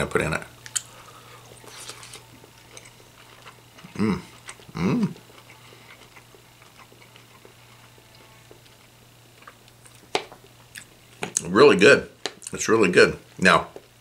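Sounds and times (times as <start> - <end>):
man chewing food: 0.6 - 11.5
man humming mmm: 3.8 - 5.4.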